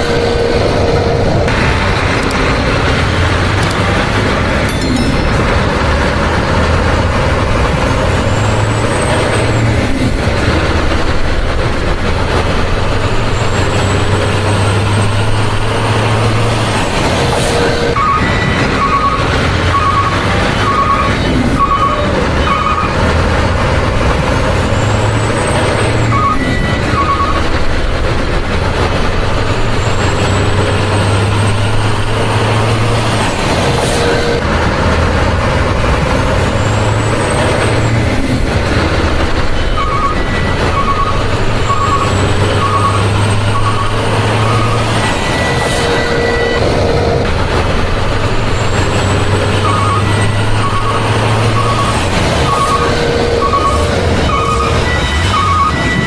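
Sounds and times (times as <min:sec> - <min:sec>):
truck engine sound effect: 0:00.0 - 0:56.0
reversing beeps: 0:39.9 - 0:46.6, 0:49.8 - 0:56.0.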